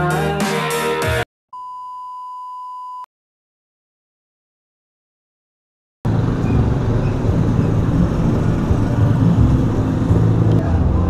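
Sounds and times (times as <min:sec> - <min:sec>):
low engine rumble: 0:06.1 - 0:11.0.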